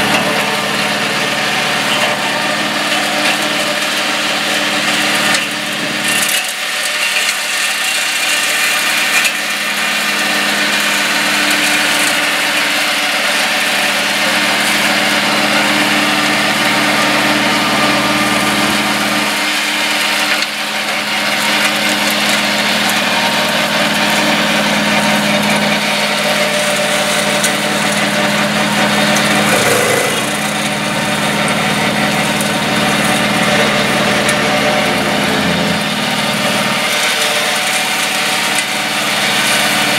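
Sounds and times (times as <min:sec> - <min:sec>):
flail mower cutting grass: 0:00.0 - 0:39.9
diesel tractor engine running: 0:28.8 - 0:37.0.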